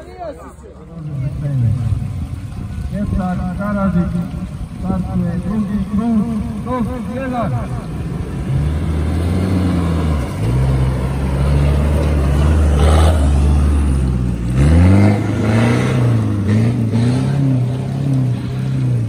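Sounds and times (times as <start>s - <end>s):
tyres spraying dirt: 0.9s - 19.0s
engine revving under load: 5.1s - 19.0s.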